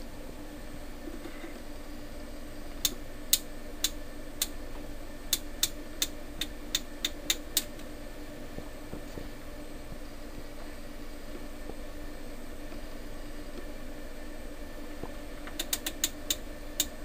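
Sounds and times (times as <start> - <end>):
rotary switch clicks: 2.8 - 4.6, 5.3 - 7.9, 15.5 - 17.0.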